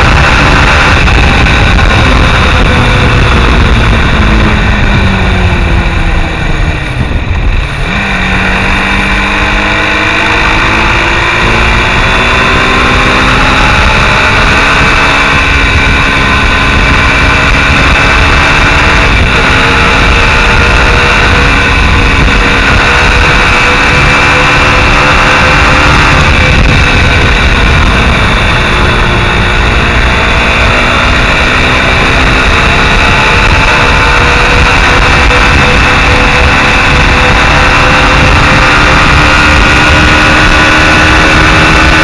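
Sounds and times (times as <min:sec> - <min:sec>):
motorcycle engine: 0:00.0 - 0:42.0
wind noise on microphone: 0:00.0 - 0:42.0.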